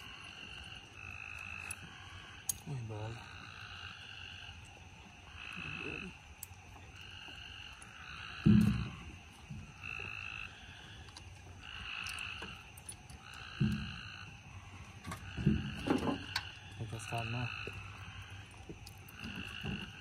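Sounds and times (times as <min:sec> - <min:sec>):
frogs calling: 0:00.0 - 0:20.0
low thumps: 0:08.4 - 0:09.7.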